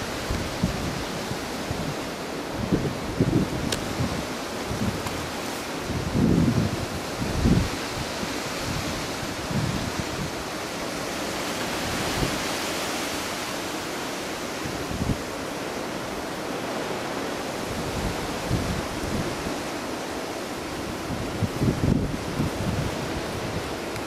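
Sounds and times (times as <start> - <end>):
wind buffeting microphone: 0.0 - 24.0
wind through palm fronds: 0.0 - 24.0.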